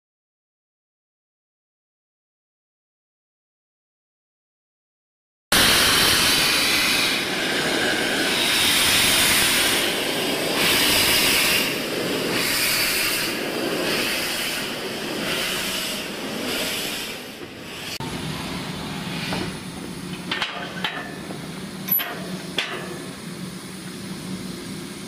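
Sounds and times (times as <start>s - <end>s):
steam locomotive hissing: 5.5s - 25.0s.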